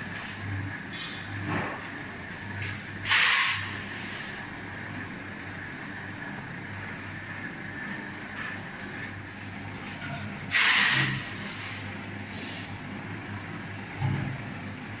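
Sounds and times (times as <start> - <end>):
mixer drive low hum: 0.0 - 15.0.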